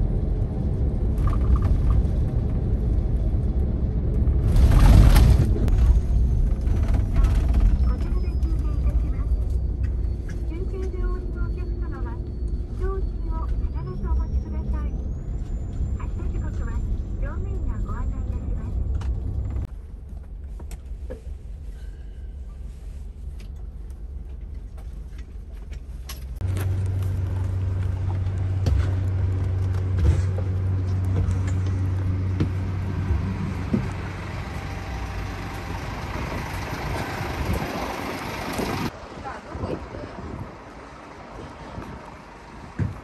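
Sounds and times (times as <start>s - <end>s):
diesel engine idling: 26.4s - 43.0s
wind noise on microphone: 36.0s - 43.0s.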